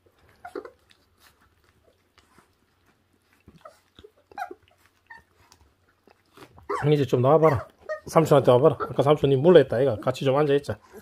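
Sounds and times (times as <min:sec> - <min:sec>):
puppies chewing meat: 0:00.0 - 0:11.0
squeaky puppy noises: 0:00.2 - 0:01.1, 0:03.4 - 0:05.5, 0:06.3 - 0:09.3.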